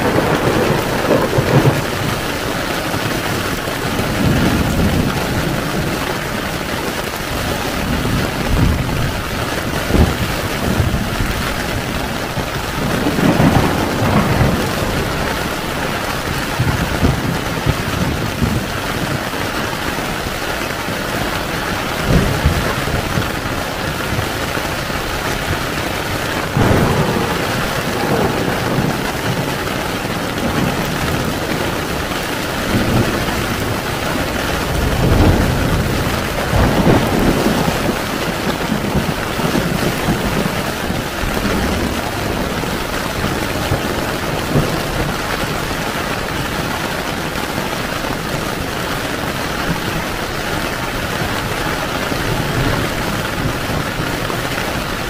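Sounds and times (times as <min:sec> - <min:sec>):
rolls of thunder: 0:00.0 - 0:02.3, 0:12.8 - 0:18.7, 0:26.4 - 0:45.2
heavy rain on a tent: 0:00.0 - 0:55.0.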